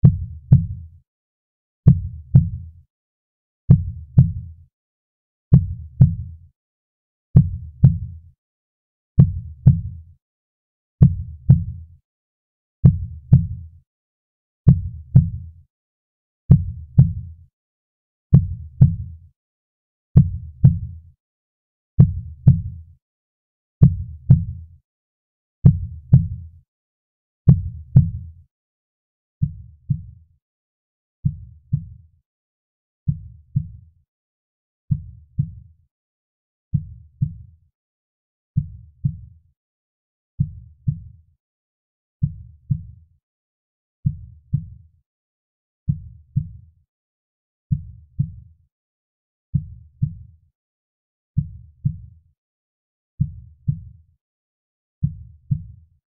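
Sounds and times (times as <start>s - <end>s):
heartbeat thumps: 0.0s - 0.8s, 1.9s - 2.6s, 3.7s - 4.4s, 9.2s - 9.9s, 11.0s - 11.8s, 14.7s - 15.4s, 18.3s - 19.1s.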